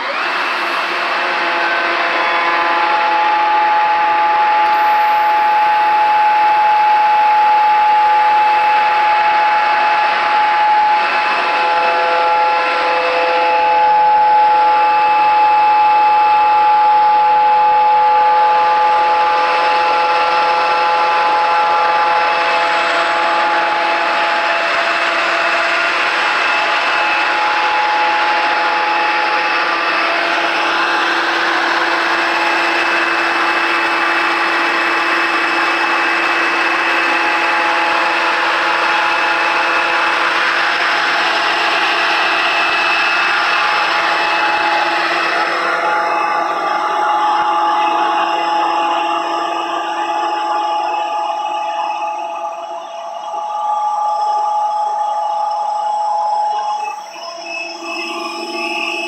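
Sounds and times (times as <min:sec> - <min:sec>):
air compressor running: 0:00.0 - 0:18.6.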